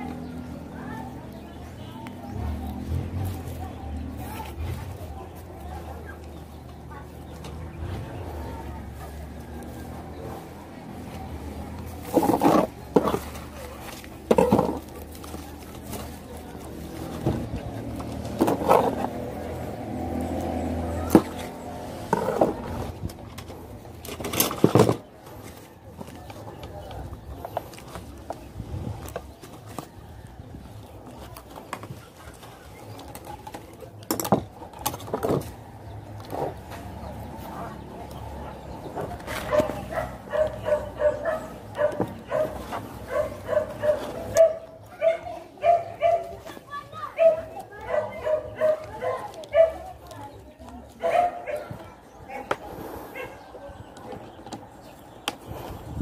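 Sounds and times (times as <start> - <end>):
steady engine hum: 0.0 - 56.0
dog barking: 39.5 - 46.4, 47.2 - 49.9, 51.0 - 52.5, 53.1 - 53.8.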